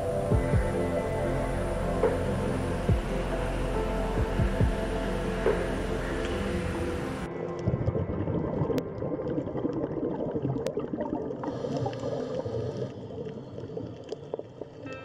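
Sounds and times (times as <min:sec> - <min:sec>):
crackling gurgling underwater noise: 0:05.1 - 0:15.0.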